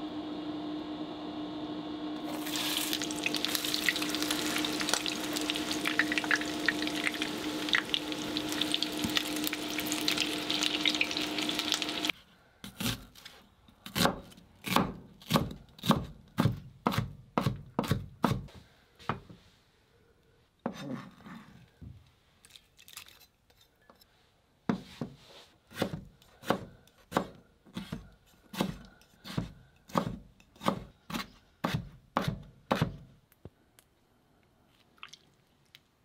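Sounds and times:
knife chopping on plastic board: 13.9 - 18.5, 25.7 - 33.1.

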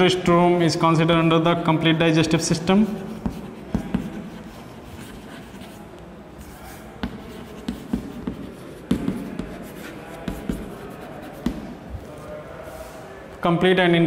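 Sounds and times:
chalk scratching on blackboard: 2.6 - 12.1
chalk tapping on board: 2.9 - 5.8, 7.0 - 11.8.

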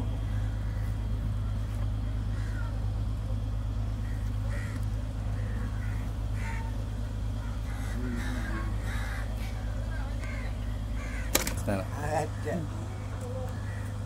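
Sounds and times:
steady low hum: 0.0 - 14.0
crows cawing: 0.3 - 1.0, 2.3 - 2.8, 4.0 - 12.7, 13.4 - 14.0.

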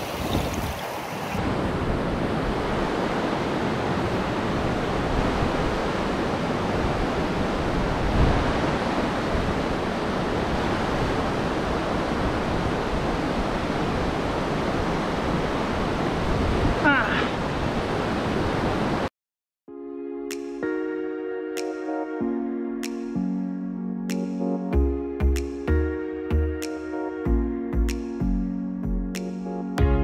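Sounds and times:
stream rushing over boulders: 0.0 - 19.1.

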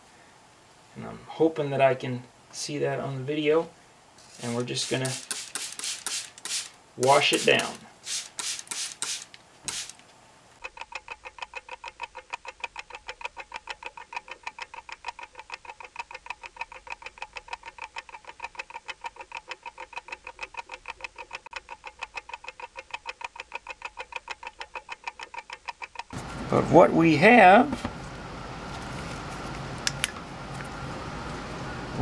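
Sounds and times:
spray bottle squirts: 4.2 - 10.0
fast clock ticking: 10.6 - 26.2.

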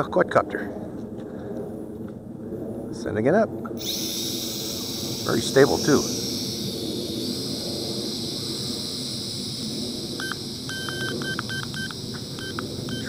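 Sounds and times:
drone propellers whirring: 3.8 - 13.0
short electronic beeps: 3.8 - 13.0.

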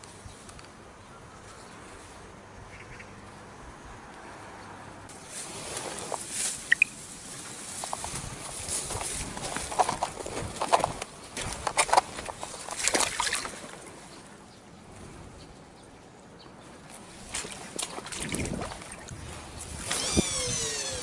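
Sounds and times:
footsteps through dry brush: 5.1 - 14.0
twigs snapping: 7.8 - 13.6.

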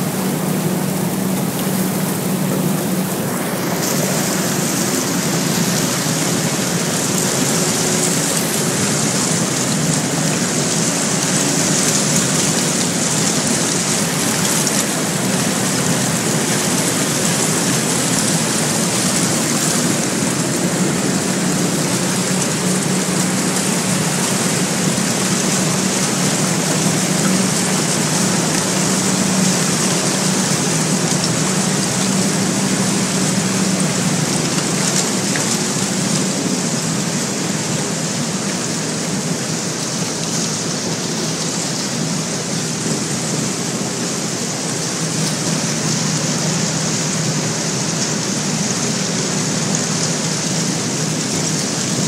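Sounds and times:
boat breaking through ice: 0.0 - 52.0
boat engine drone: 0.0 - 52.0.

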